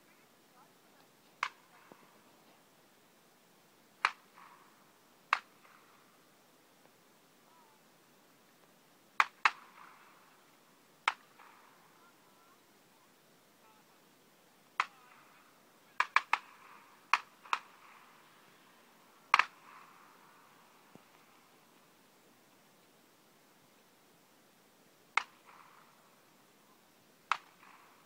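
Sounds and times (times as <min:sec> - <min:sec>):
shotgun shots echoing: 0:04.0 - 0:06.0, 0:19.3 - 0:20.9.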